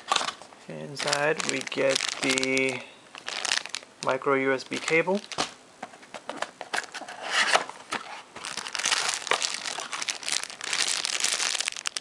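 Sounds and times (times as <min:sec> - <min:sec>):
plastic bag crinkling: 0:00.8 - 0:05.6, 0:07.9 - 0:12.0.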